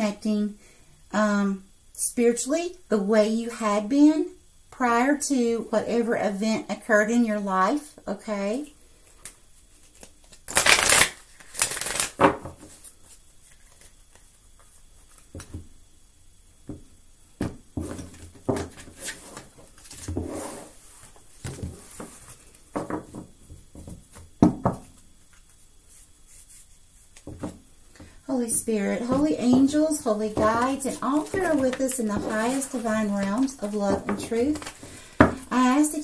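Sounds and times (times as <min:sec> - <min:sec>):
cards being shuffled: 0:09.2 - 0:15.6, 0:29.0 - 0:35.5.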